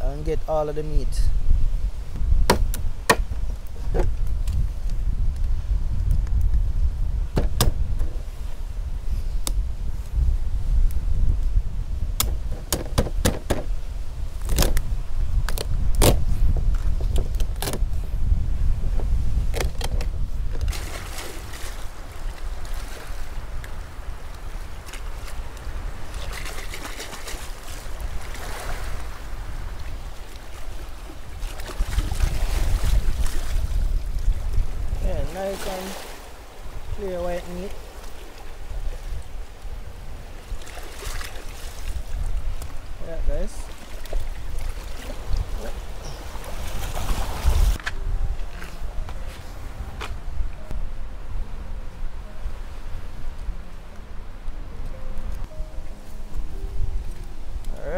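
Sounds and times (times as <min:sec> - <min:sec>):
wind rumble on microphone: 0:00.0 - 0:57.9
water splashing: 0:20.6 - 0:23.4, 0:24.8 - 0:33.6, 0:43.6 - 0:47.7
shallow seawater washing: 0:20.6 - 0:33.9, 0:34.9 - 0:47.8.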